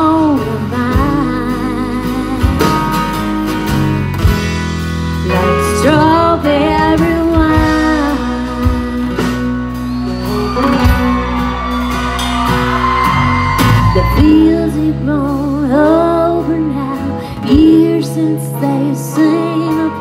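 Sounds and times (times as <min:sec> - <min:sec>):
woman singing: 0:00.0 - 0:03.0, 0:05.3 - 0:09.8, 0:13.7 - 0:20.0
acoustic guitar and band: 0:00.0 - 0:20.0.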